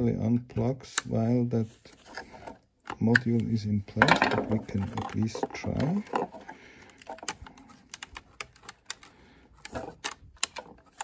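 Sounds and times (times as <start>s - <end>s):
plastic connector clicks: 7.0s - 11.0s.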